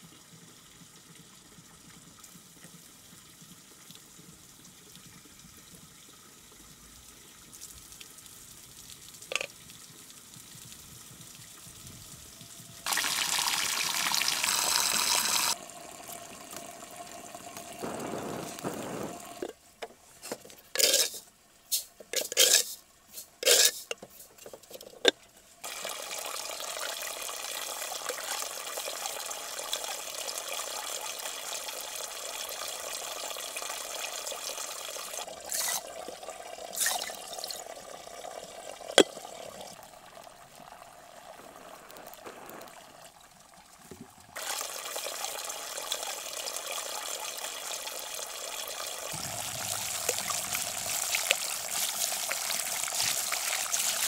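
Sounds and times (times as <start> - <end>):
water pouring into tank: 9.2 - 19.6, 25.6 - 54.0
loud irregular cracks: 17.6 - 19.5
steady rushing noise: 17.8 - 19.5, 49.2 - 51.6.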